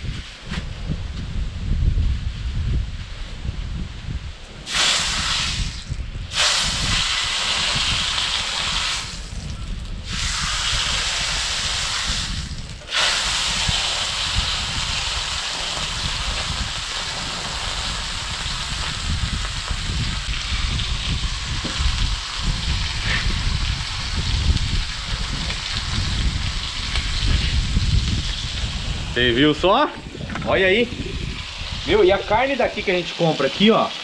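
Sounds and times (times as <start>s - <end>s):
steaks sizzling in oil: 4.7s - 9.3s, 10.1s - 29.1s, 31.2s - 34.0s.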